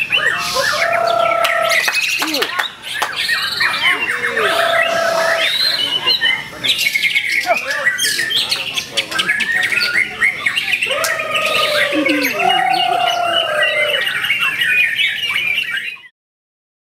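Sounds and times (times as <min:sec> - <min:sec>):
bird singing chirps and whistles: 0:02.9 - 0:16.1.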